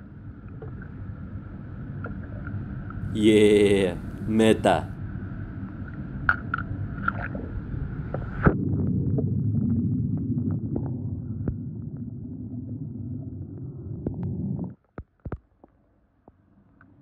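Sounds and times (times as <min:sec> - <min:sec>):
muffled underwater rumble: 0:06.8 - 0:14.7.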